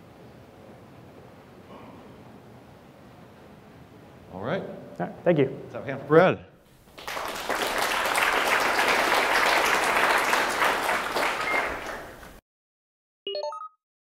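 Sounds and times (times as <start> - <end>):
audience applauding: 6.8 - 12.4.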